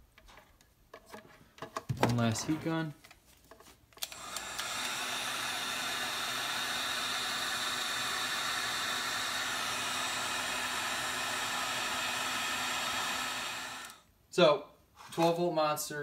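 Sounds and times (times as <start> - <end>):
heat gun blowing air: 4.0 - 14.1.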